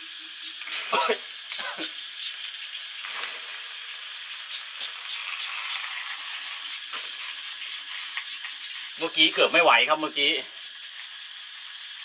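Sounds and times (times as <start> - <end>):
vegetables sizzling in a wok: 0.0 - 12.0.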